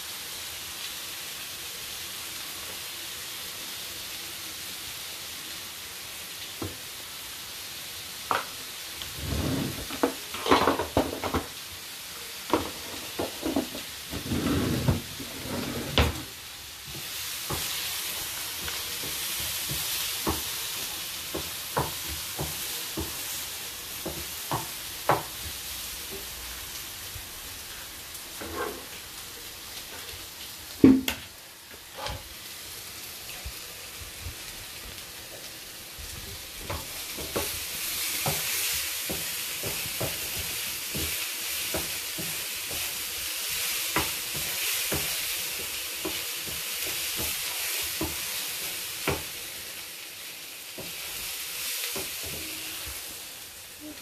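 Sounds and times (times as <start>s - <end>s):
onions sizzling in a frying pan: 0.0s - 54.0s
wooden spatula scraping a pan: 9.0s - 11.0s, 12.6s - 20.4s, 28.4s - 29.0s.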